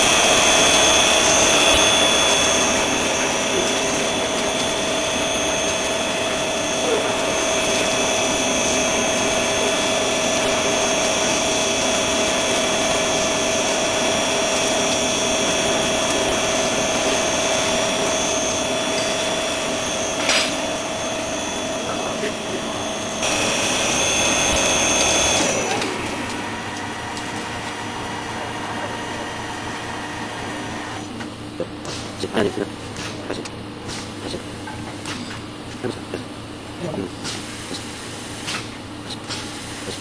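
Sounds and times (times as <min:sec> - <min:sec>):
grinding machine whining: 0:00.0 - 0:31.2
motor winding down: 0:00.0 - 0:31.2.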